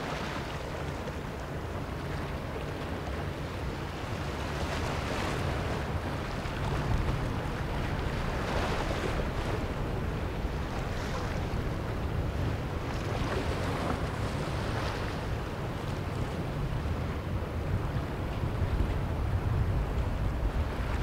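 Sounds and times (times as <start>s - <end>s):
water rushing along hull: 0.0s - 21.0s
wind buffeting microphone: 5.0s - 21.0s.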